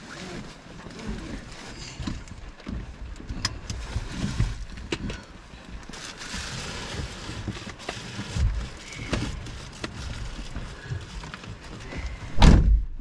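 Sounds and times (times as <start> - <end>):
car driving on rough dirt track: 0.0 - 13.0
loud thump: 12.2 - 13.0.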